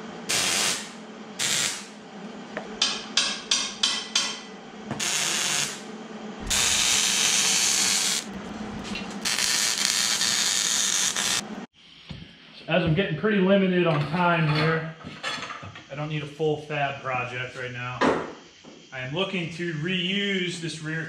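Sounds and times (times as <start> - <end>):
hand-held power tool running: 6.4 - 11.5.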